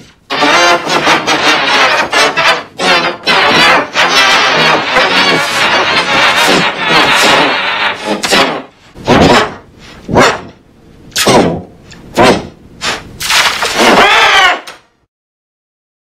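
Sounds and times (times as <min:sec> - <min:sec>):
distorted pitch-shifted screams: 0:00.3 - 0:08.7, 0:13.4 - 0:14.8.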